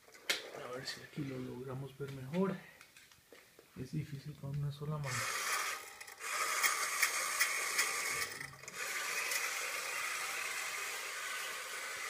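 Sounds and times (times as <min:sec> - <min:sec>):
toy helicopter motor whirring: 0:05.1 - 0:12.0.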